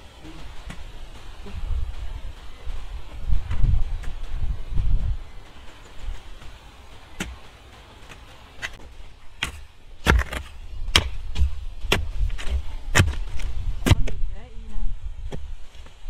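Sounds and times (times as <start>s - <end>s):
hoe chopping stony soil: 5.7s - 14.2s.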